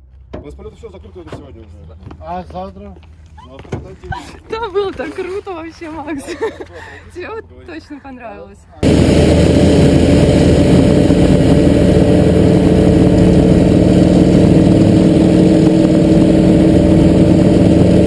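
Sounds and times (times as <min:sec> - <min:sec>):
light plane engine drone: 0:08.8 - 0:18.0.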